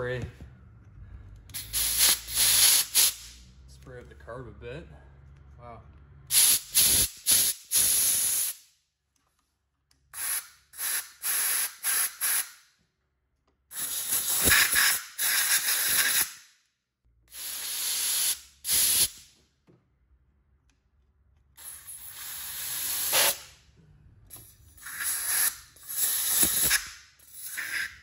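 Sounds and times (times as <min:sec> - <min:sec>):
compressed air blow gun hissing: 0:01.6 - 0:03.4, 0:06.3 - 0:08.6, 0:10.2 - 0:12.5, 0:13.7 - 0:16.3, 0:17.3 - 0:19.2, 0:21.6 - 0:23.5, 0:24.4 - 0:28.0.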